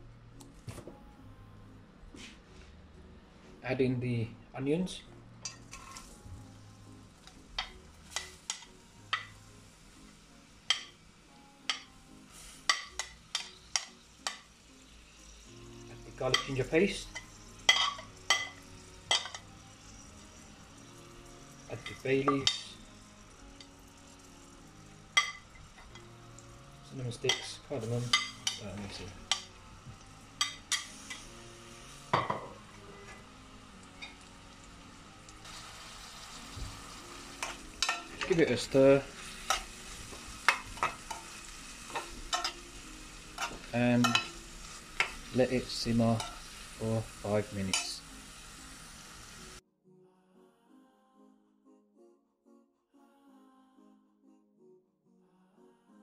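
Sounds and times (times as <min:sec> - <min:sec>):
onions sizzling in oil: 0:05.4 - 0:49.6
metal spoon clinking on plate and pan: 0:12.7 - 0:14.5, 0:16.3 - 0:19.5, 0:25.2 - 0:26.1, 0:27.2 - 0:29.5, 0:37.4 - 0:38.7, 0:39.4 - 0:39.7, 0:40.4 - 0:41.3, 0:41.9 - 0:42.6, 0:43.4 - 0:44.4, 0:47.6 - 0:48.0.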